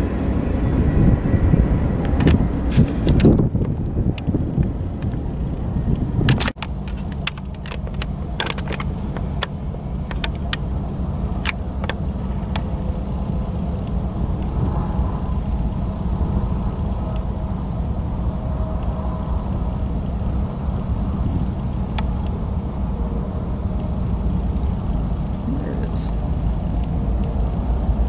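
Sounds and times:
freight train rumbling: 0.0s - 28.0s
sharp clicks and knocks: 6.3s - 10.7s.

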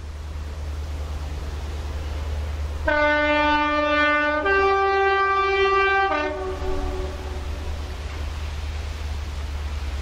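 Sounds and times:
locomotive two-tone horn: 2.8s - 8.0s.

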